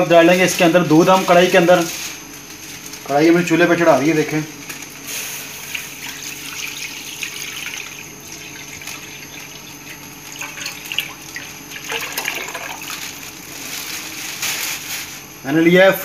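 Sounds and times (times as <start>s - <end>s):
milk pouring and splashing in pan: 5.5s - 13.4s.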